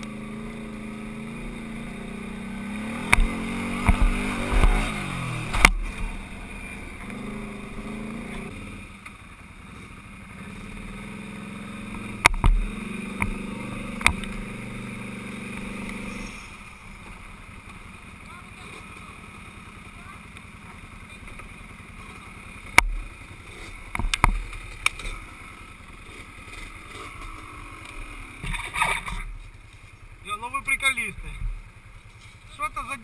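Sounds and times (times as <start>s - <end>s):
quad engine revving: 0.0s - 9.0s, 9.7s - 17.2s, 18.0s - 29.4s
knocks over rough ground: 3.0s - 6.2s, 12.2s - 14.5s.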